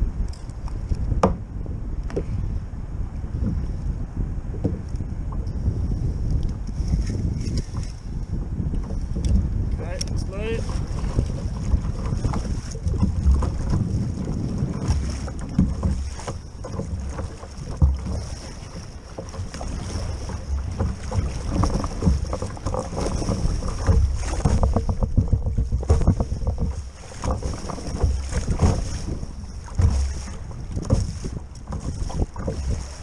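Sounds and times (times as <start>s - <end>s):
water washing against hull: 0.0s - 33.0s
wind rumble on microphone: 0.0s - 33.0s
paddle strokes splashing: 4.6s - 33.0s.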